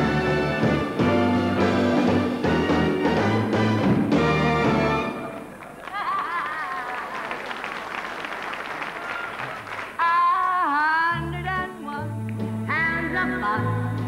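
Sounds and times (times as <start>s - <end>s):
live band playing: 0.0s - 5.6s
audience applauding: 4.9s - 10.0s
person singing: 10.0s - 14.0s.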